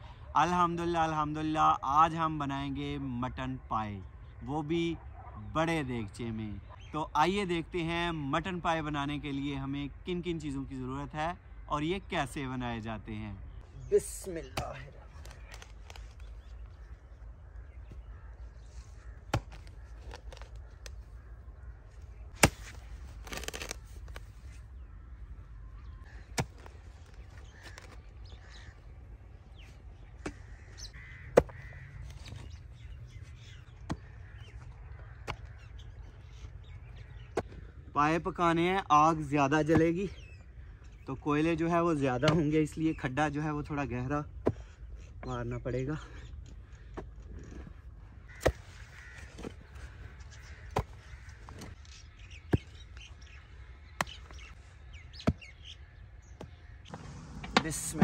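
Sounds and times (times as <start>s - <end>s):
birds chirping: 0.0s - 58.0s
crows cawing: 15.2s - 24.2s, 24.8s - 37.9s, 47.8s - 57.0s
hoe chopping into dry soil: 19.1s - 21.0s, 22.3s - 24.2s, 26.1s - 28.0s, 48.3s - 49.6s, 50.5s - 51.8s, 53.9s - 55.7s
hoe striking hard earth: 22.3s - 23.8s.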